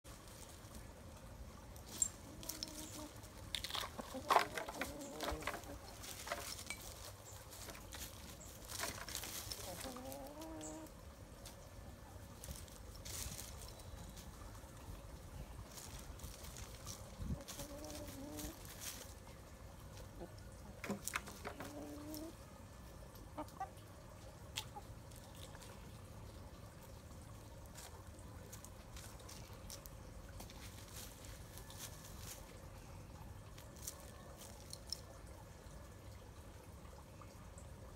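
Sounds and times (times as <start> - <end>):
chickens scratching in dry leaves: 0.1 - 35.4
chickens clucking softly: 0.8 - 6.4, 9.5 - 12.4, 13.6 - 35.9
chicken clucking: 2.1 - 6.5, 9.6 - 10.9, 16.9 - 18.8, 19.7 - 26.0.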